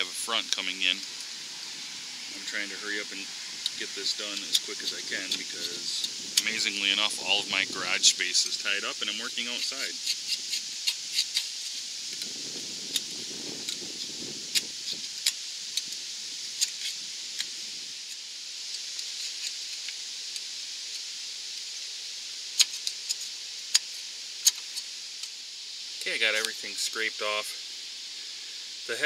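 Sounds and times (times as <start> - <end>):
wind rumbling: 0.8 - 9.4, 11.8 - 18.0.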